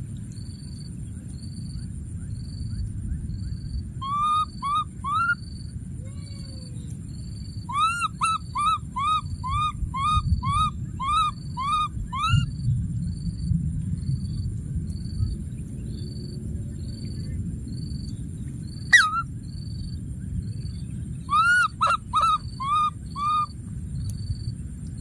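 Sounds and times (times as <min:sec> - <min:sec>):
baby monkey crying: 0:04.0 - 0:05.4, 0:07.7 - 0:12.4, 0:18.9 - 0:19.2, 0:21.3 - 0:23.5.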